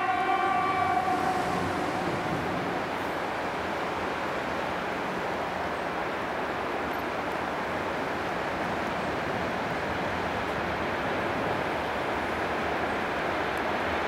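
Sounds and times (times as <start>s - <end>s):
train running on rails: 0.0s - 14.0s.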